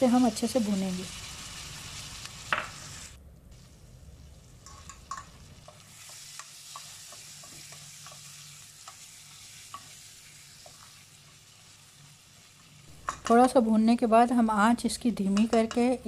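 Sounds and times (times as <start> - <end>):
faint sizzle of frying: 0.0 - 16.0
spatula scraping and tapping pan: 4.6 - 10.0, 13.0 - 13.5, 15.3 - 16.0.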